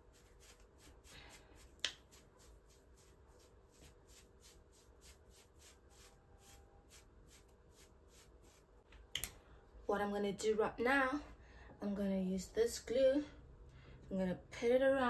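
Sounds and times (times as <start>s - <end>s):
brush strokes through short hair: 0.0s - 8.8s.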